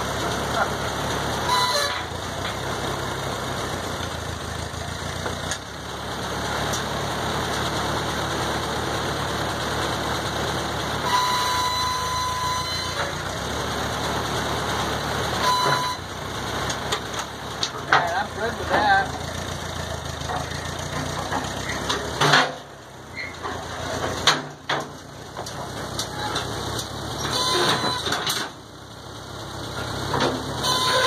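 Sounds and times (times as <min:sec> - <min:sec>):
tractor engine idling: 0:00.0 - 0:31.0
high squeal: 0:01.5 - 0:02.1, 0:11.0 - 0:13.1.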